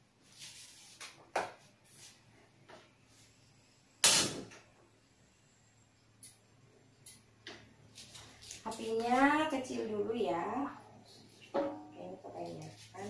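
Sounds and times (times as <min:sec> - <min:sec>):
wok and utensils knocking: 0:11.6 - 0:12.0.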